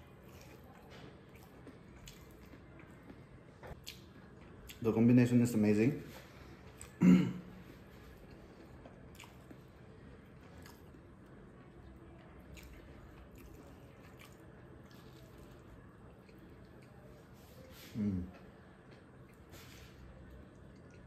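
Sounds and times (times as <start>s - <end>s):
person chewing food: 0.0s - 4.8s, 7.6s - 11.4s, 12.4s - 17.2s.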